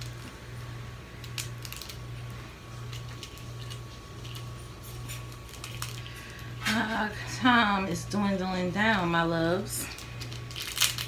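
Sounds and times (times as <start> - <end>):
crab shell crackling: 0.0 - 6.6, 9.9 - 11.0
steady low hum: 0.0 - 11.0.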